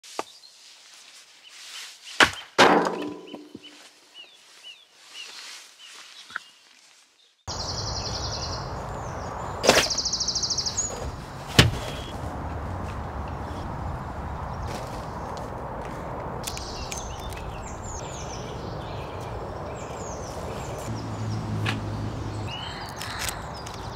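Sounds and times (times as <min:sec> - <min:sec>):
birds chirping: 0:01.4 - 0:12.2, 0:12.8 - 0:23.9
axe striking log: 0:02.2 - 0:03.6, 0:11.5 - 0:12.0
sharp knocks: 0:02.6 - 0:03.7
steady outdoor hiss: 0:07.5 - 0:23.9.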